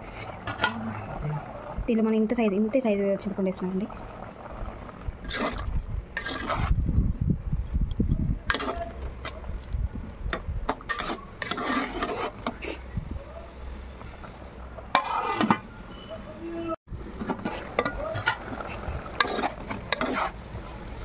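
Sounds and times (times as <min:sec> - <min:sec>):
ladle scraping a metal pot: 0:05.2 - 0:06.8, 0:08.5 - 0:09.4, 0:10.7 - 0:12.9, 0:14.2 - 0:15.7, 0:17.2 - 0:20.4.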